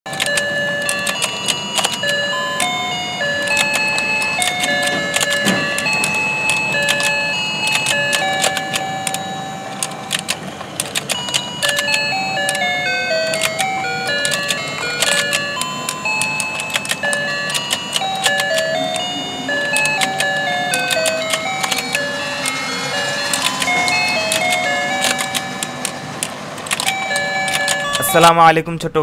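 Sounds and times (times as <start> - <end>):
toy playing electronic melody: 0.0 - 28.4
plastic clicking of toy: 0.1 - 2.8, 3.4 - 9.2, 9.8 - 12.6, 23.2 - 28.0.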